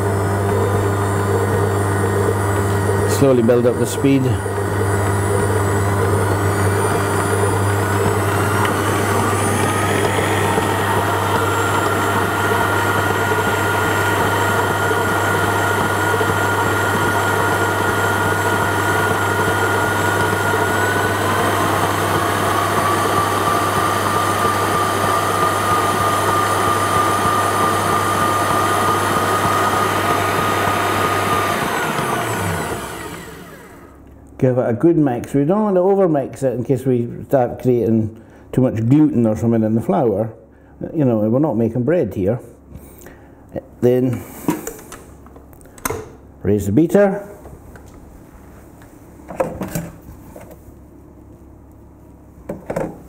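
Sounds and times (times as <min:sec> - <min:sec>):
stand mixer motor whining: 0:00.0 - 0:34.0.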